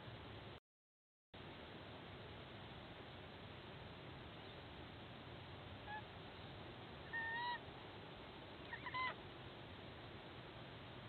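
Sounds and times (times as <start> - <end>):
sea eagle honking calls: 7.1 - 7.6, 8.7 - 9.2.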